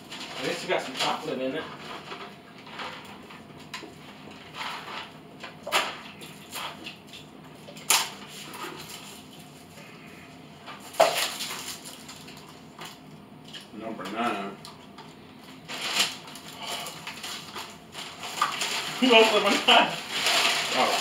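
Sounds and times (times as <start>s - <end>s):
plastic snack packet crinkling: 15.7s - 21.0s.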